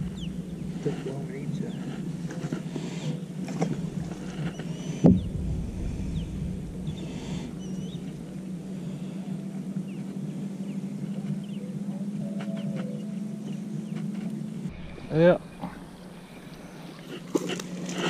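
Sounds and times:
small birds chirping: 0.0 - 17.4
steady low hum: 0.0 - 18.0
sharp knock: 3.6 - 8.5.

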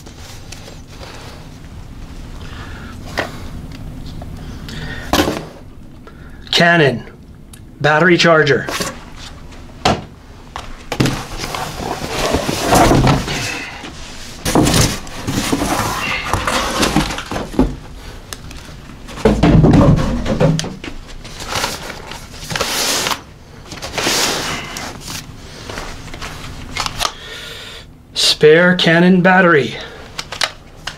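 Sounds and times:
cardboard scraping and rustling: 10.6 - 18.0, 19.0 - 27.0
boxes thudding down: 10.8 - 18.0, 19.0 - 21.9.

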